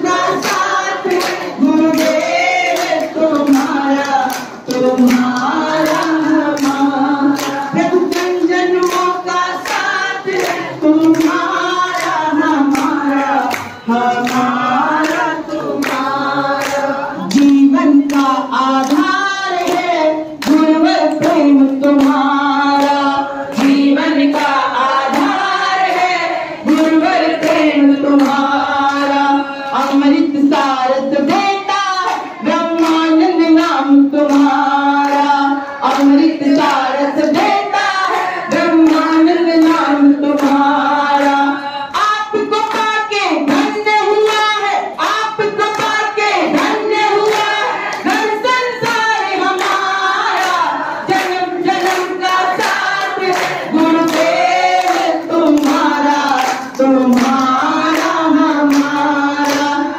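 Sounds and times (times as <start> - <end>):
hand-clapping steady beat: 0.0 - 59.9
women singing devotional song: 0.0 - 59.9.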